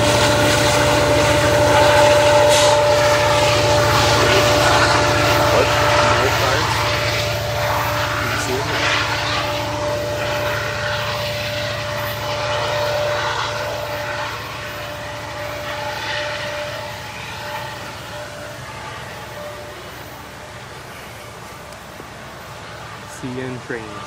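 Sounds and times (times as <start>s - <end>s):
diesel locomotive engine pulsing: 0.0s - 24.0s
steady whine: 0.0s - 24.0s.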